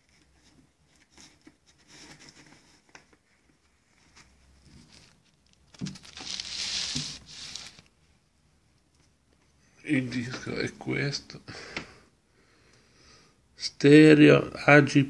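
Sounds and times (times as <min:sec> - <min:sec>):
paper and card rustling: 0:00.0 - 0:07.9.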